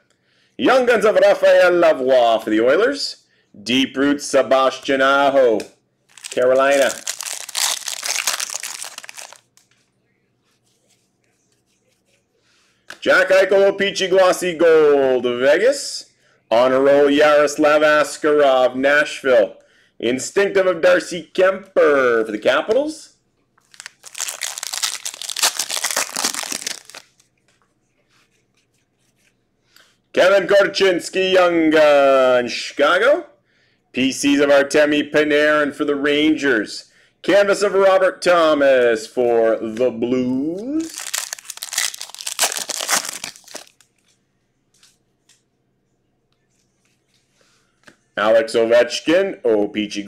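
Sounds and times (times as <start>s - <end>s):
foil wrapper tearing and crinkling: 6.1s - 9.6s, 23.7s - 27.2s, 40.8s - 43.8s
cards rustling: 6.1s - 9.9s, 23.6s - 28.4s, 40.8s - 44.2s.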